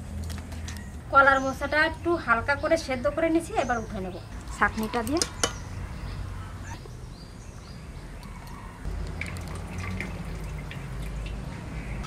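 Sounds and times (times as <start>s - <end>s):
water dripping into pot: 8.4s - 11.5s.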